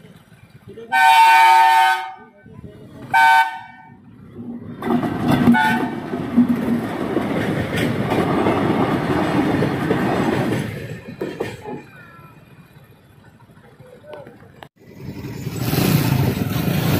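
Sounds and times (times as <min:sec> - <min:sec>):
locomotive engine rumble: 0:00.0 - 0:16.9
train horn: 0:00.9 - 0:02.3, 0:03.1 - 0:03.9, 0:05.5 - 0:06.0
wheels clattering over rails: 0:04.1 - 0:16.9.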